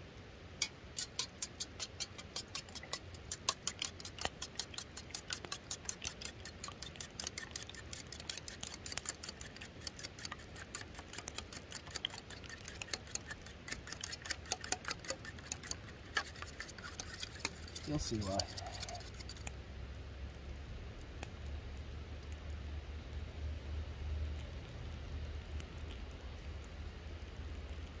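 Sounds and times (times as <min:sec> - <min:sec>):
utensil beating eggs in bowl: 0:00.6 - 0:19.6.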